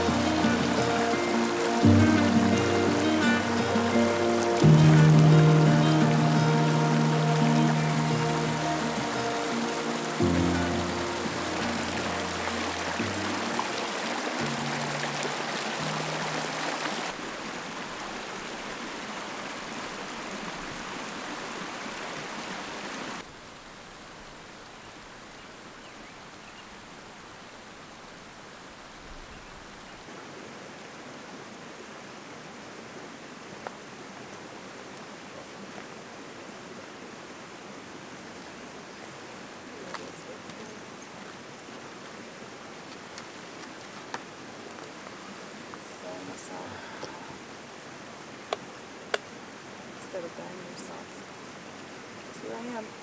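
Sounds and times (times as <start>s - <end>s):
low music notes: 0.0s - 16.7s
creek rushing over rocks: 0.0s - 53.0s
outdoor hiss: 0.0s - 53.0s.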